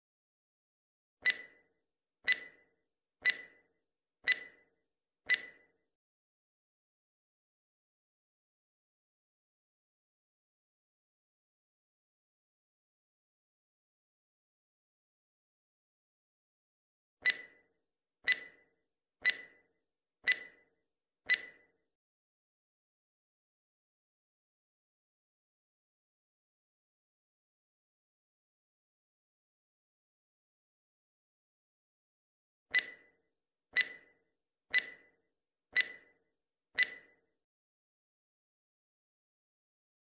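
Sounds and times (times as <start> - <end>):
timer ticks with high ring: 1.2 - 5.8, 17.2 - 21.8, 32.7 - 35.2, 35.8 - 36.2, 36.8 - 37.2.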